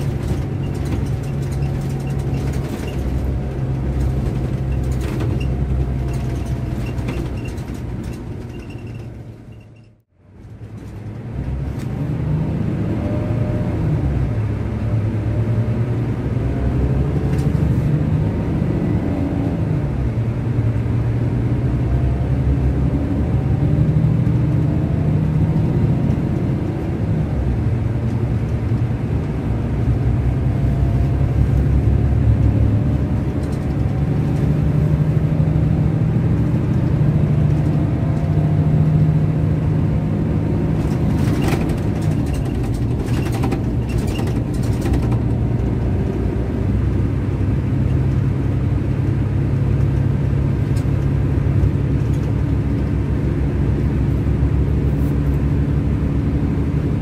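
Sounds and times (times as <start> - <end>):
diesel engine drone: 0.0 - 57.0
sharp clicks or rattles: 40.8 - 45.4.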